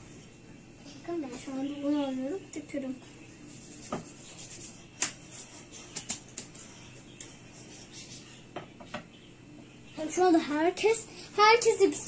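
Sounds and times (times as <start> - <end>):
rolling pin rubbing dough: 3.3 - 8.4.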